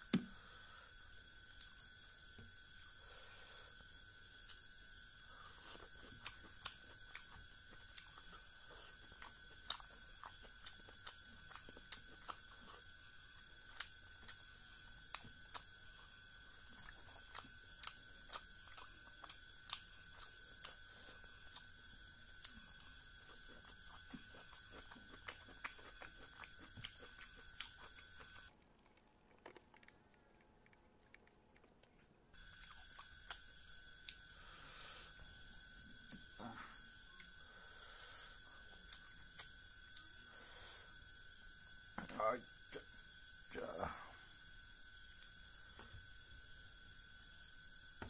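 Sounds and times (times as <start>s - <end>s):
steady high-pitched hum: 0.0s - 48.0s
person chewing food: 5.3s - 37.5s, 38.3s - 40.4s.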